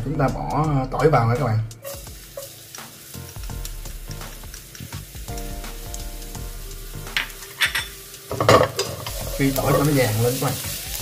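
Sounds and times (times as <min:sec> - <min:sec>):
garlic sizzling in oil: 0:00.2 - 0:11.0.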